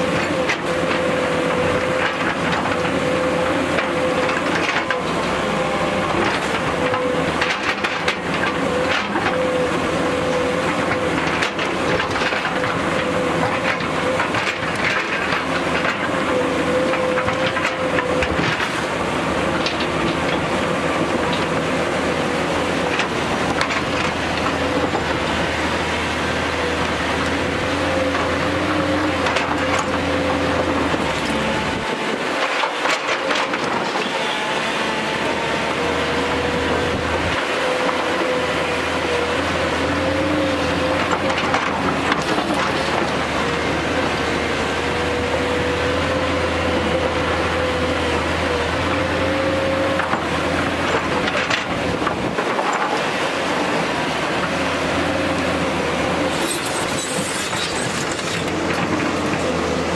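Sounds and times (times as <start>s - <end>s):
excavator diesel engine running: 0.0s - 59.9s
hydraulic whine: 0.0s - 59.9s
bucket scraping loose rock: 56.3s - 59.2s.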